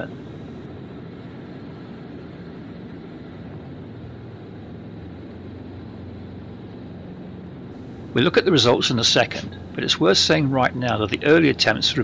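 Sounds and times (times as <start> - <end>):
aircraft engine drone: 0.0 - 12.0
airflow: 7.6 - 12.0.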